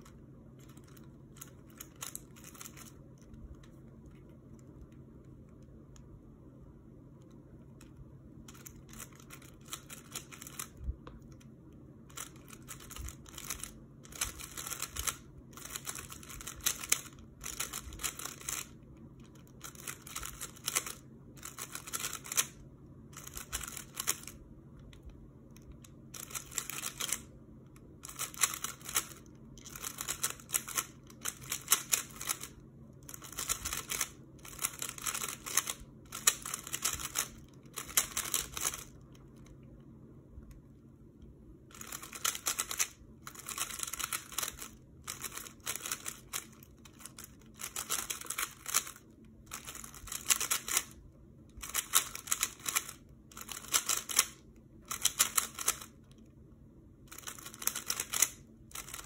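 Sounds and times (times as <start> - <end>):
puzzle cube rattling clicks: 0.6 - 3.0, 8.5 - 10.8, 12.1 - 22.6, 23.2 - 24.4, 25.6 - 27.3, 28.0 - 39.0, 41.7 - 51.0, 51.6 - 56.0, 57.1 - 59.0.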